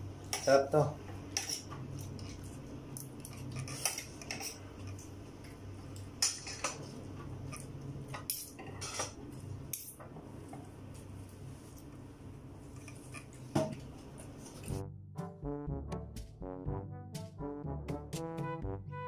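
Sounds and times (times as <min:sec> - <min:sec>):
cutlery clinking on plate: 0:03.2 - 0:05.0, 0:06.2 - 0:06.8, 0:07.5 - 0:09.2.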